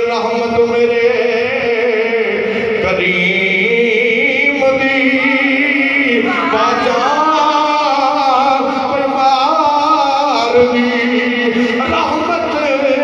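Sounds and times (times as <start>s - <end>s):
man singing into a microphone: 0.0s - 13.0s.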